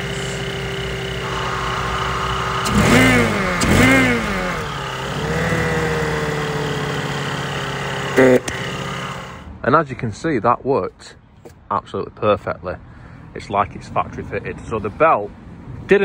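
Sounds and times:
car engine revving and idling: 0:00.0 - 0:09.6
supercharger whine: 0:00.0 - 0:09.6.

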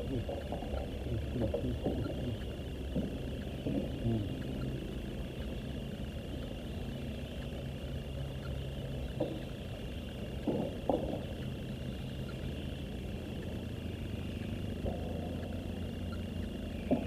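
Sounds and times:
high-pitched whine: 0:00.0 - 0:17.0
low motor drone: 0:00.0 - 0:17.0
short knocks: 0:10.4 - 0:11.3.

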